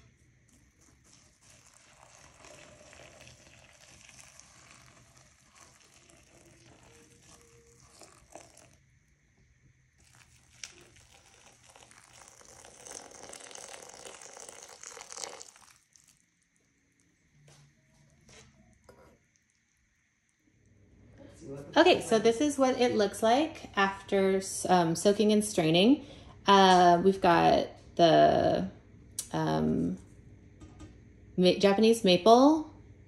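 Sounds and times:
water pouring into glass bowl: 0:00.5 - 0:08.8, 0:10.0 - 0:16.3.

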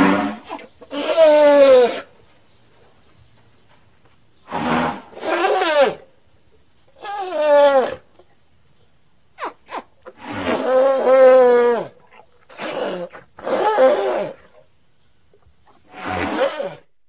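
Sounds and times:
elephant calf calling: 0:00.0 - 0:02.1, 0:04.5 - 0:06.0.

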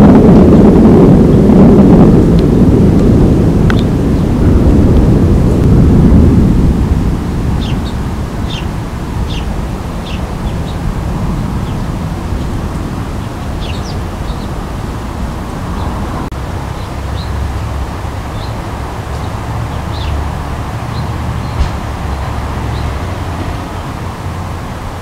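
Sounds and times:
low rumble: 0:00.0 - 0:24.9
high bird chirps: 0:13.2 - 0:14.6.

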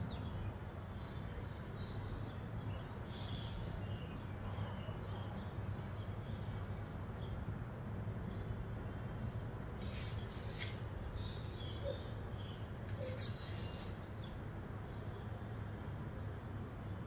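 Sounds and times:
birds chirping: 0:08.0 - 0:15.4.

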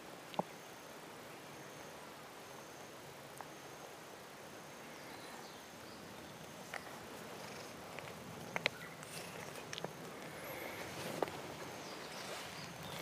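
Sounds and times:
cat purring: 0:06.6 - 0:13.0.

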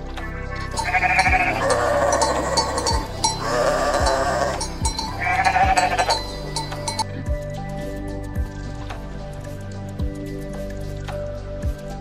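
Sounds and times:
background music with low beat: 0:00.0 - 0:12.0
sheep bleating: 0:00.7 - 0:07.0.

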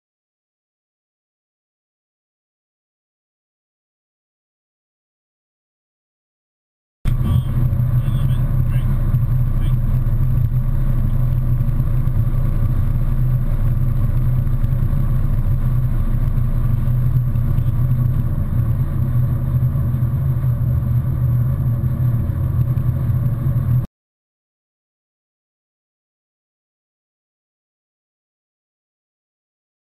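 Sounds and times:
vehicle engine and road rumble: 0:07.1 - 0:23.9.

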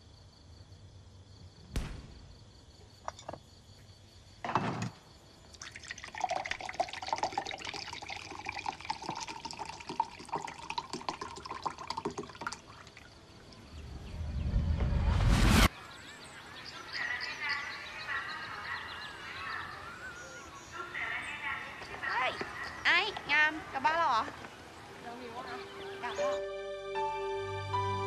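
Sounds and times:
short thump: 0:01.7 - 0:02.6
water pouring: 0:05.5 - 0:13.8.

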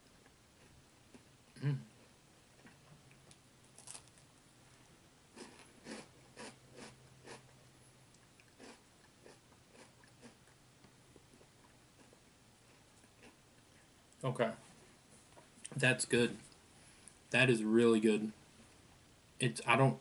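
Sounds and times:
crunching crisp pastry: 0:02.6 - 0:04.4.

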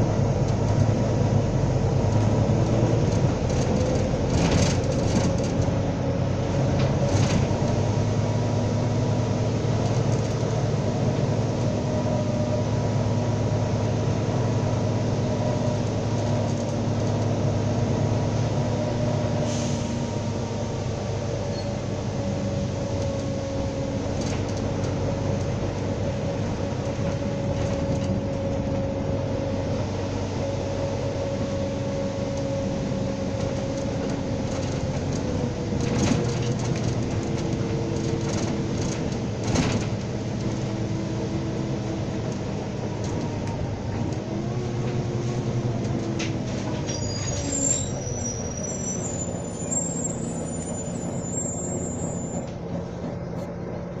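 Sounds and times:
bus engine and transmission whine: 0:00.0 - 0:54.0
high-pitched squeal: 0:46.8 - 0:52.5.

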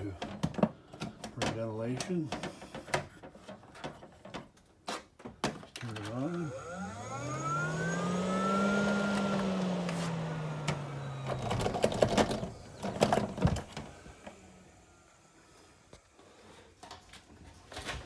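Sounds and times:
vent fan motor humming: 0:05.8 - 0:17.9.

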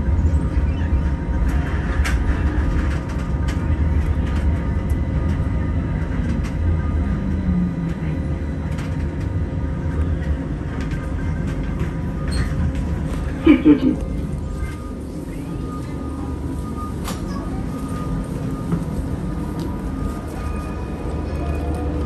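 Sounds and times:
electric tram rumbling: 0:00.0 - 0:22.0
faint hum: 0:00.0 - 0:22.0.

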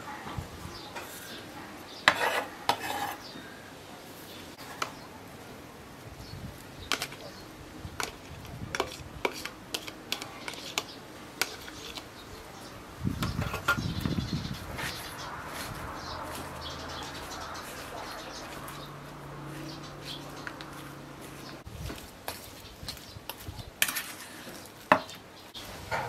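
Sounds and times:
fork scraping in metal bowl: 0:02.0 - 0:03.3, 0:08.0 - 0:12.1, 0:23.8 - 0:24.7.

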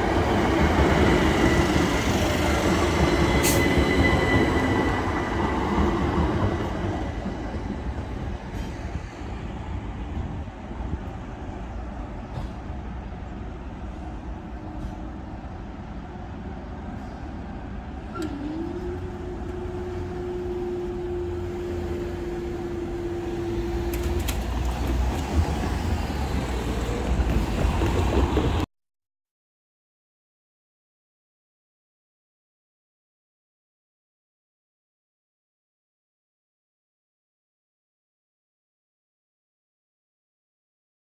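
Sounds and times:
road traffic: 0:06.5 - 0:28.7.

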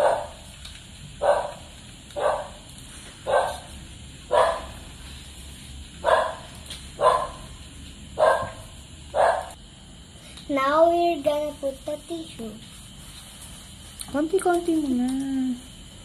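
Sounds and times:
dog barking: 0:00.0 - 0:00.4, 0:01.2 - 0:02.6, 0:03.3 - 0:03.7, 0:04.3 - 0:04.8, 0:06.0 - 0:07.5, 0:08.2 - 0:09.6.

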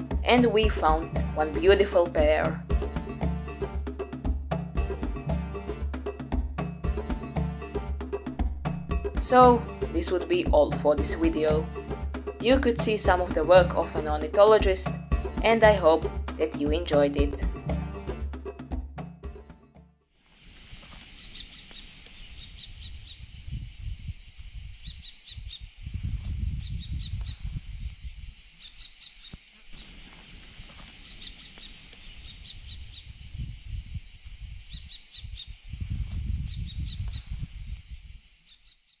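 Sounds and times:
steady high hiss: 0:20.2 - 0:39.0
wind rumbling on microphone: 0:22.2 - 0:28.5, 0:32.2 - 0:38.3.

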